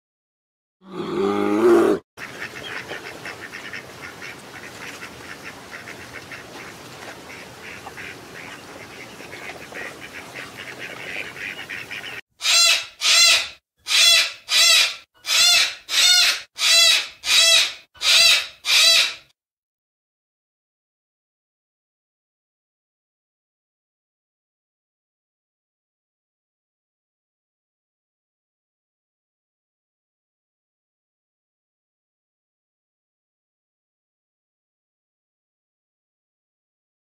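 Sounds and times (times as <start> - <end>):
low animal call: 0.8 - 2.0
duck calls: 2.2 - 19.3
cockatoo screeches: 12.4 - 19.3.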